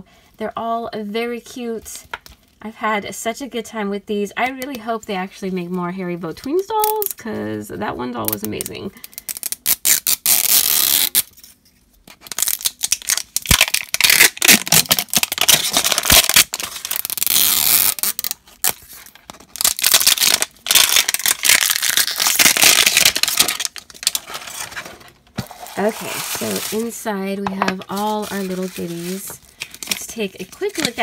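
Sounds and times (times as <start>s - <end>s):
plastic wrapping crinkling and tearing: 12.2s - 27.0s, 27.8s - 31.0s.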